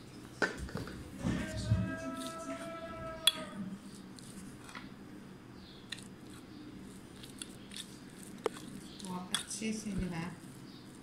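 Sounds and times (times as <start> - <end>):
soft squishing of food: 0.0 - 11.0.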